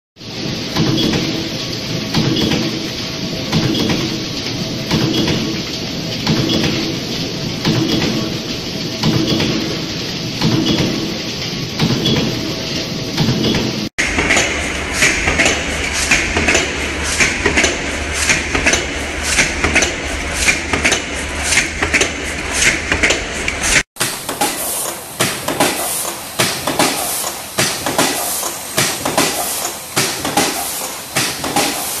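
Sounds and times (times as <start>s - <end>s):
stamping press clanking: 0.7s - 32.0s
low machine hum: 14.0s - 23.8s.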